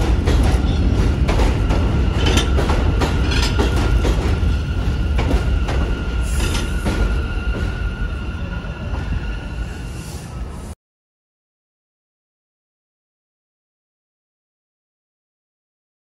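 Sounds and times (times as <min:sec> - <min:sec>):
wheels clicking over rail joints: 0:00.0 - 0:04.4
high-pitched train whine: 0:00.0 - 0:10.8
subway train rumbling past: 0:00.0 - 0:10.8.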